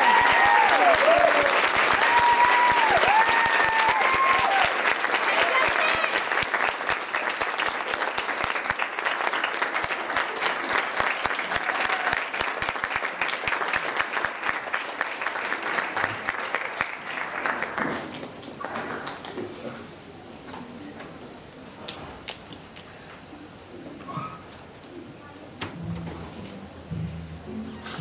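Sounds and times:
audience applauding: 0.0 - 19.4.

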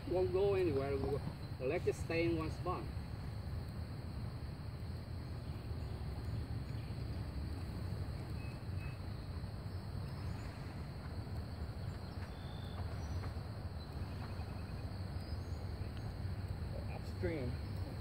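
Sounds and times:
steady low rumble: 0.0 - 18.0
faint bird chirps: 8.1 - 10.9, 11.6 - 18.0
bird trill: 8.2 - 10.4, 11.8 - 16.1.

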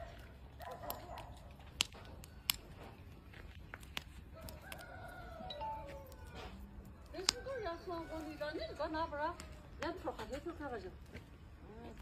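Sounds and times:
rooster crowing: 4.4 - 6.6.

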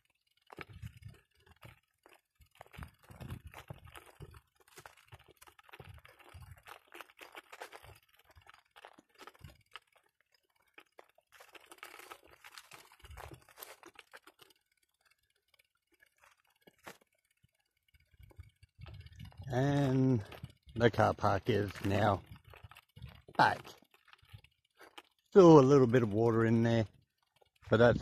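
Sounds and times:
footsteps crunching on dirt and leaves: 0.5 - 14.6, 19.4 - 26.1.

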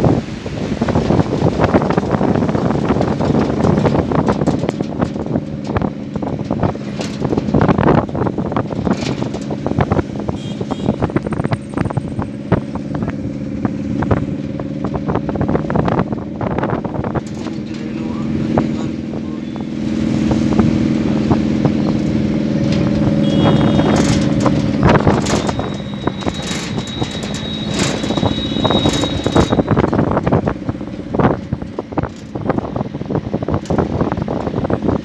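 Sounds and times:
vehicle engine and road noise: 0.0 - 35.0
wind buffeting microphone: 0.0 - 35.0
short knocks and rattles: 1.0 - 10.3, 13.9 - 18.7, 23.8 - 35.0.

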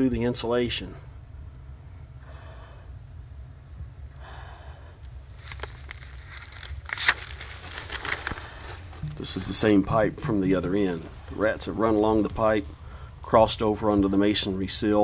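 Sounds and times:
steady low hum: 0.0 - 15.0
breathing through respirator: 2.2 - 3.0, 4.1 - 5.1, 12.8 - 13.2
rustling and scraping: 5.0 - 11.6.

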